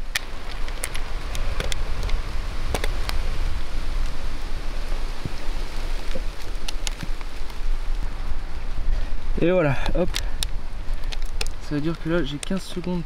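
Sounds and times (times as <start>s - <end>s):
sharp drips and clicks: 0.0s - 3.2s, 5.2s - 8.0s, 9.8s - 13.0s
footsteps through wet undergrowth: 0.0s - 13.0s
rain falling in woodland: 0.0s - 13.0s
wind rumble on microphone: 0.0s - 13.0s.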